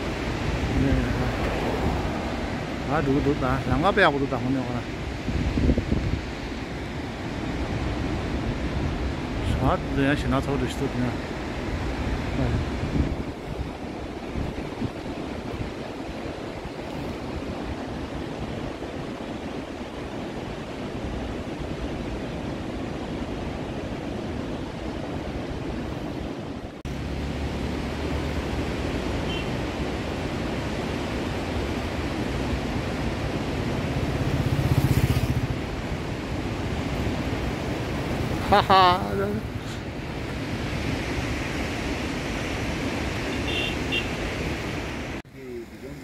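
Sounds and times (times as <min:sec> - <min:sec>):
wind buffeting microphone: 0:00.0 - 0:10.0, 0:11.2 - 0:26.8
motorcycle engine approaching: 0:33.6 - 0:35.7.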